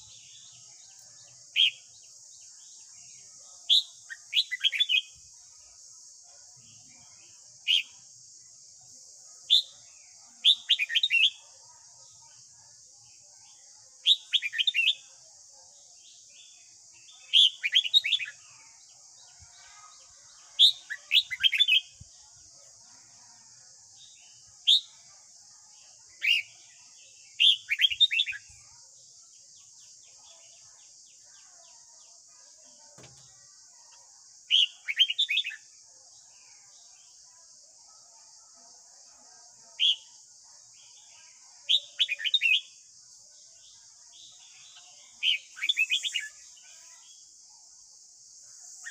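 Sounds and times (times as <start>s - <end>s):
bird singing short phrases: 0.0s - 5.2s, 16.2s - 22.1s, 27.3s - 28.8s, 34.5s - 35.7s, 44.1s - 47.2s.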